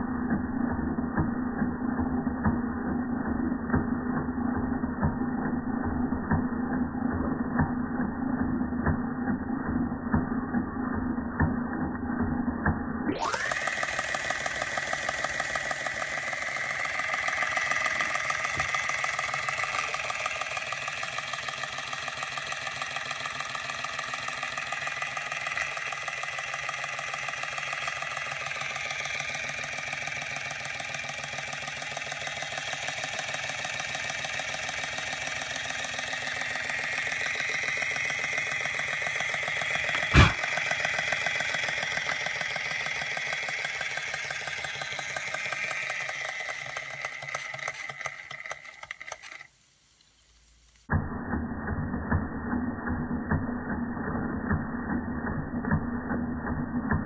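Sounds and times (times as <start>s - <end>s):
toy steam engine running: 0.0s - 49.5s, 51.3s - 57.0s.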